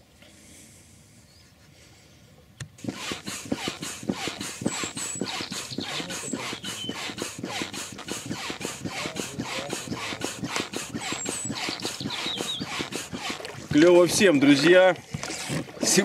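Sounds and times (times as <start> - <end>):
foot pump puffing air: 2.8 - 14.4.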